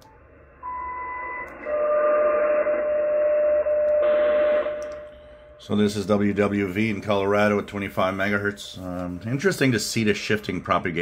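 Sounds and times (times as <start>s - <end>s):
steady lower tone: 0.0s - 9.8s.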